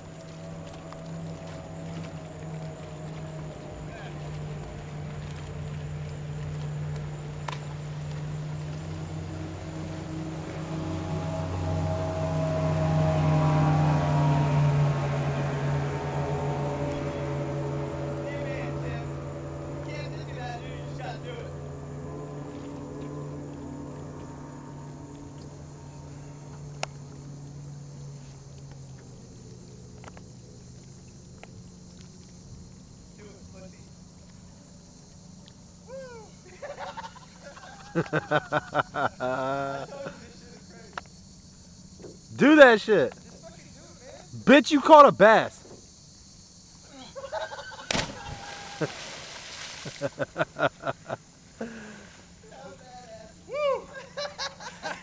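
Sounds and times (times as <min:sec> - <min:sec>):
boat motor humming: 0:00.0 - 0:46.8, 0:47.8 - 0:55.0
faint clicks: 0:40.9 - 0:41.2.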